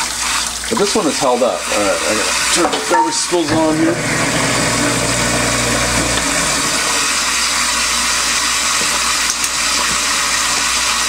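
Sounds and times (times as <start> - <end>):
water running into sink: 0.0 - 11.0
garbage disposal motor humming: 1.7 - 9.1.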